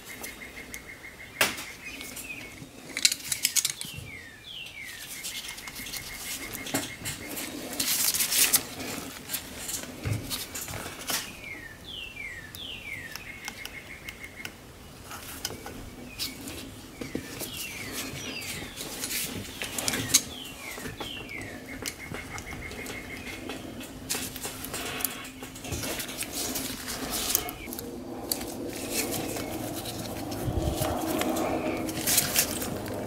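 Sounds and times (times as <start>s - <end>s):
hand tools clicking and clinking: 2.8s - 4.0s, 17.4s - 33.0s.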